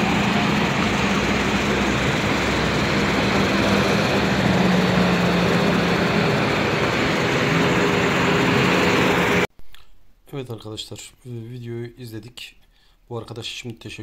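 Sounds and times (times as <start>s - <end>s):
constant noise wash: 0.0s - 9.5s
engine drone: 0.0s - 9.5s.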